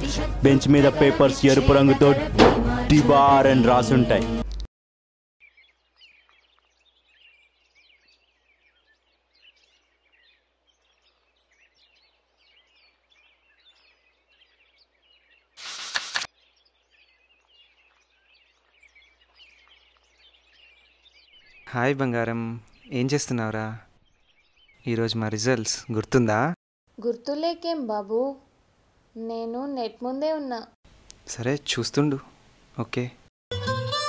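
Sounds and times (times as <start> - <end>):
birds chirping: 5.4 - 26.6.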